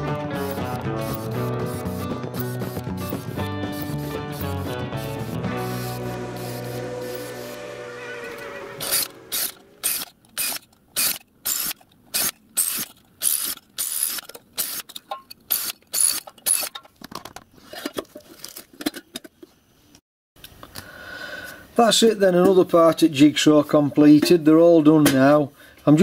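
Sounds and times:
cordless drill rattling bursts: 0:08.9 - 0:14.8.

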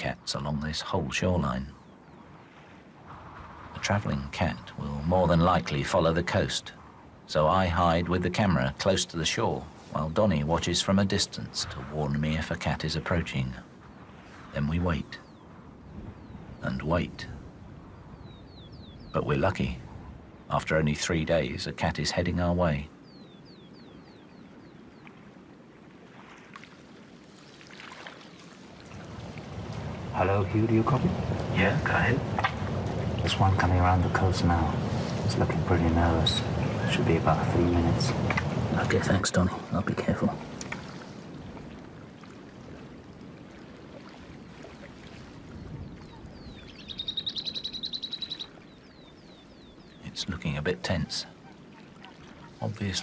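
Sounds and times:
songbird whistling and trilling: 0:18.0 - 0:19.2, 0:45.6 - 0:50.0
water lapping at rocky shore: 0:24.0 - 0:46.9, 0:47.9 - 0:53.0.

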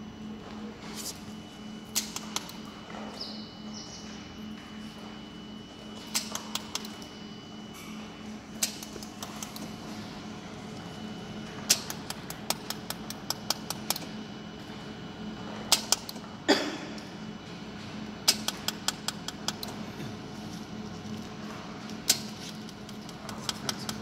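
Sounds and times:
machine hum: 0:00.0 - 0:24.0
laser welder snapping ticks: 0:01.9 - 0:02.6, 0:06.1 - 0:07.1, 0:08.6 - 0:09.7, 0:11.7 - 0:14.1, 0:15.7 - 0:16.2, 0:18.2 - 0:19.7.

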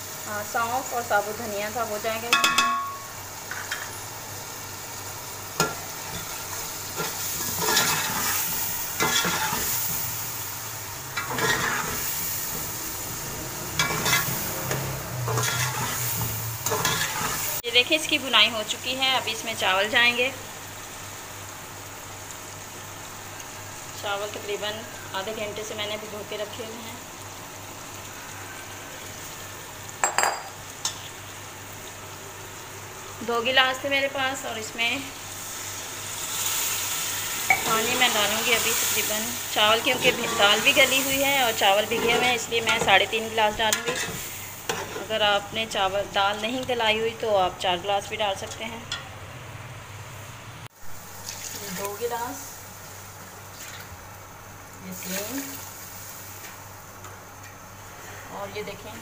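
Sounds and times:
food sizzling in oil: 0:00.0 - 0:59.0
metal spatula clinking on pot: 0:02.3 - 0:03.9
metal spatula scraping pot: 0:07.0 - 0:09.7, 0:11.2 - 0:12.0, 0:13.7 - 0:17.6, 0:43.7 - 0:45.1.

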